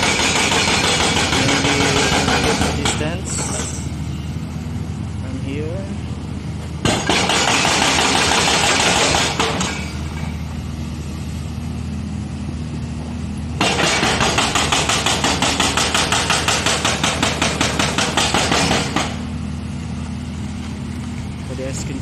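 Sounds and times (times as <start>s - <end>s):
hydraulic breaker hammering: 0.0s - 3.9s, 6.8s - 10.3s, 13.6s - 19.3s
diesel engine hum: 0.0s - 22.0s.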